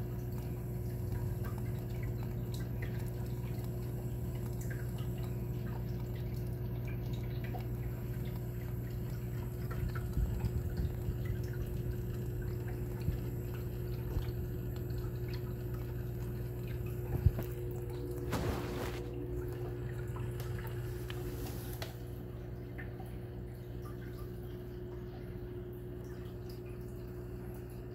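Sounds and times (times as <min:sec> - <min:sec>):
steady low hum: 0:00.0 - 0:27.9
water trickling and dripping: 0:00.0 - 0:27.9
water splash: 0:17.1 - 0:22.0.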